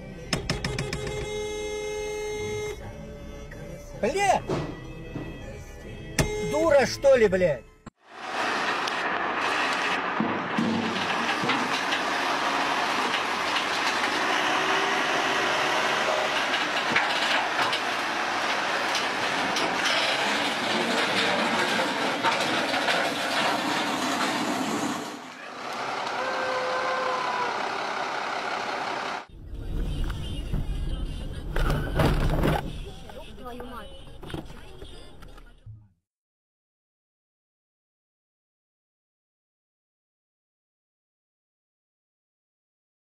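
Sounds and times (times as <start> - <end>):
crane engine running: 8.2 - 32.0
road noise inside car: 25.2 - 35.6.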